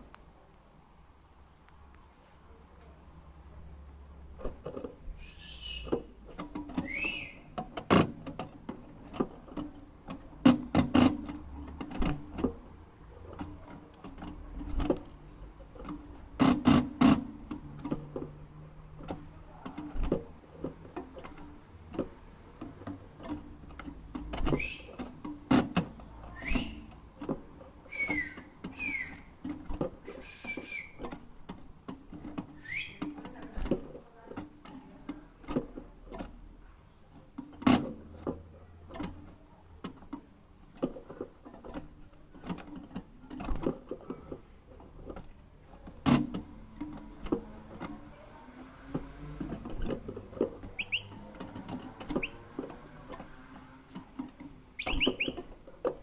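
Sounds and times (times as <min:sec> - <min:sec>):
sharp clicks and knocks: 0:04.3 - 0:05.1, 0:05.7 - 0:56.0
finch chirping: 0:05.2 - 0:05.9, 0:06.8 - 0:07.5, 0:24.6 - 0:24.9, 0:26.4 - 0:26.9, 0:27.9 - 0:29.3, 0:30.1 - 0:31.0, 0:32.6 - 0:33.0, 0:50.8 - 0:51.2, 0:52.2 - 0:52.4, 0:54.8 - 0:55.4.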